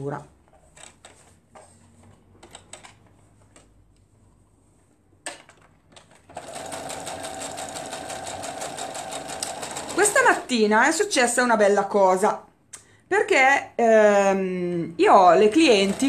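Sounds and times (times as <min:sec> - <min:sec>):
electric sewing machine stitching: 0:06.3 - 0:10.5, 0:15.4 - 0:16.0.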